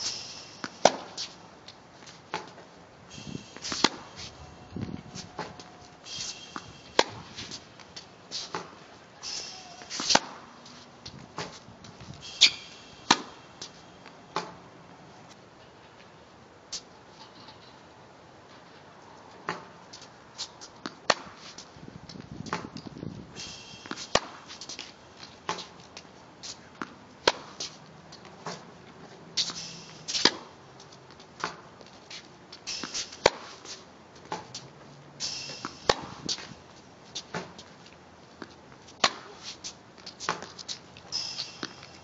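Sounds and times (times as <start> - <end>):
tennis racket hitting ball: 0.1 - 1.4, 3.3 - 14.6, 20.4 - 21.6, 23.8 - 25.8, 26.4 - 28.7, 29.4 - 30.6, 31.4 - 34.6, 35.4 - 36.5, 37.2 - 37.7, 38.4 - 42.0
shoes scuffing on hard court: 35.6 - 42.0.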